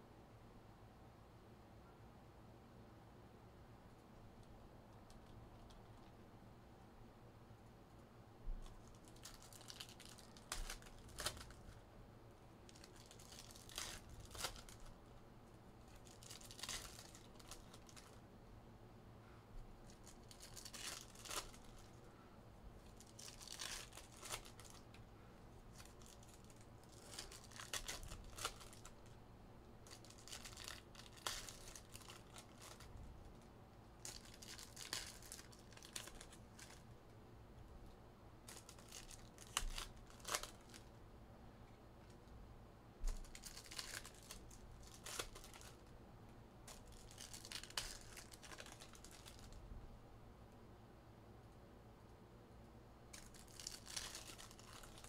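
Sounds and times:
foil packs tearing and crinkling: 8.8s - 11.6s, 12.7s - 15.0s, 15.9s - 18.2s, 19.9s - 22.0s, 22.8s - 25.0s, 25.7s - 29.1s, 29.8s - 32.9s, 34.0s - 36.8s, 38.4s - 40.8s, 43.1s - 45.8s, 46.7s - 49.5s, 53.2s - 55.0s.

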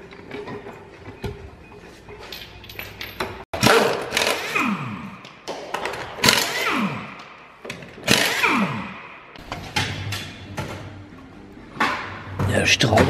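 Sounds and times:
pneumatic impact wrench bursts: 3.6s - 5.1s, 6.2s - 7.2s, 8.0s - 9.1s.

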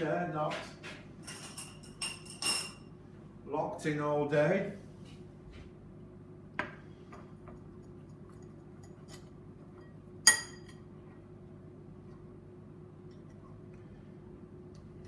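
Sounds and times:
faint steady hum: 0.0s - 15.0s
sharp ringing clink: 10.3s - 10.8s.

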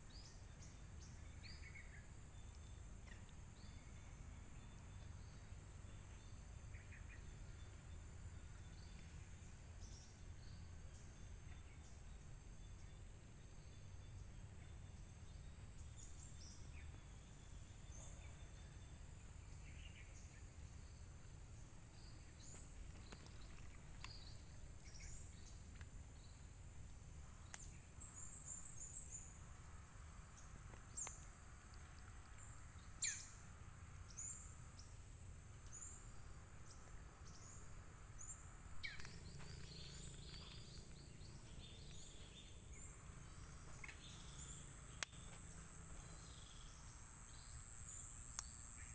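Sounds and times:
bird chirps: 0.0s - 48.9s.

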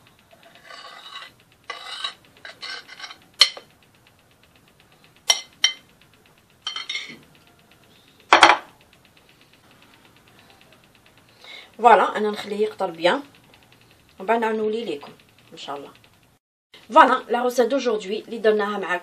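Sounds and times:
spatula scraping a bowl: 0.4s - 3.6s.

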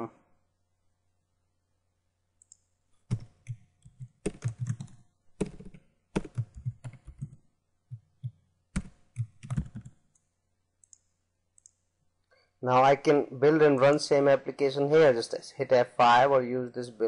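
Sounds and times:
typing on computer keyboard: 2.4s - 10.2s.

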